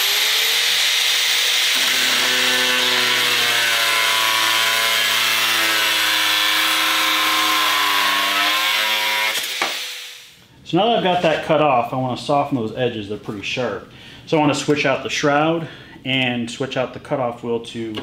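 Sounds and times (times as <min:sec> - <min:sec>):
angle grinder cutting metal rod: 0:00.0 - 0:10.4.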